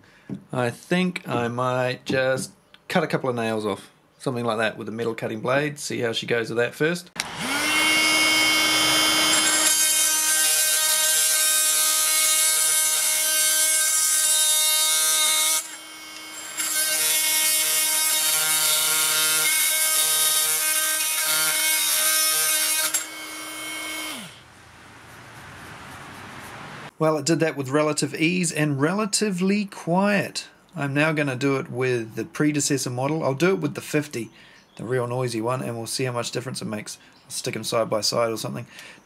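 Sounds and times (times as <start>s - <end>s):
blade grinding through nail: 7.2s - 24.4s
oscillating multi-tool buzzing: 7.2s - 24.5s.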